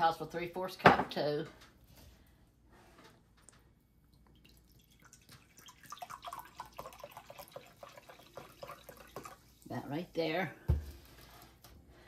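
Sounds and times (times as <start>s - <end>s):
liquid fizzing and crackling: 4.1s - 9.8s
soda pouring into glass: 4.4s - 9.5s.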